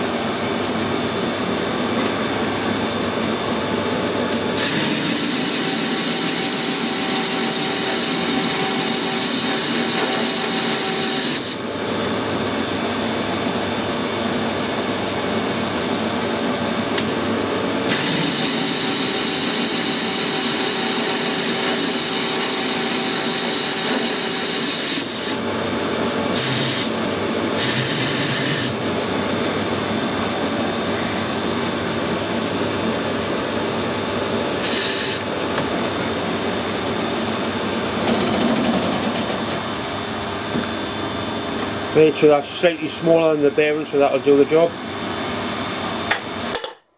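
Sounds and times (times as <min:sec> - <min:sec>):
metal lathe running: 0:00.0 - 0:13.9, 0:16.9 - 0:45.4
lathe tool cutting hiss: 0:04.6 - 0:11.6, 0:17.9 - 0:25.4, 0:26.3 - 0:27.0, 0:27.6 - 0:28.8, 0:34.5 - 0:35.3.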